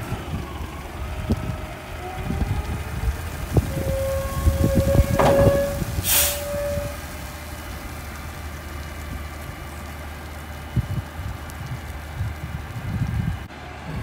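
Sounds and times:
diesel engine idling: 0:00.0 - 0:14.0
hydraulic whine: 0:03.7 - 0:07.0
knocks and clatter: 0:04.6 - 0:06.0
thump: 0:05.0 - 0:05.8
sharp hiss of air: 0:05.5 - 0:06.6.

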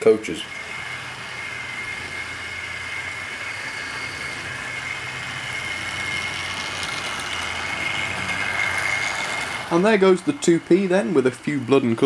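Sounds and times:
model train motor whining: 0:00.0 - 0:12.0
wheels rumbling on rails: 0:00.0 - 0:12.0
sharp clicks of model train: 0:05.5 - 0:10.0.

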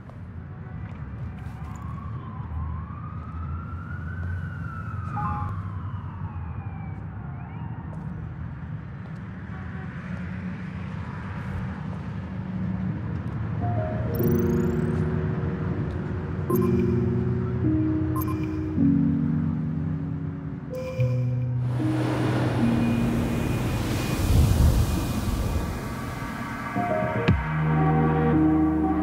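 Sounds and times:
low rumble of traffic: 0:00.0 - 0:29.0
distant siren wailing: 0:01.4 - 0:08.2, 0:13.6 - 0:29.0.

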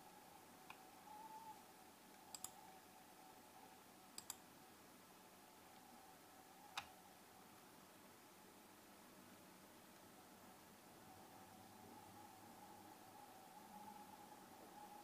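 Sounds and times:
faint steady hum: 0:00.0 - 0:15.0
mouse button clicking: 0:02.3 - 0:02.6, 0:04.2 - 0:04.4.

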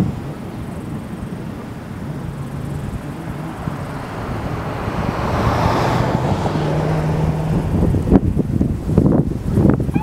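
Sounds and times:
low engine hum: 0:00.0 - 0:10.0
wind noise on microphone: 0:00.0 - 0:10.0.

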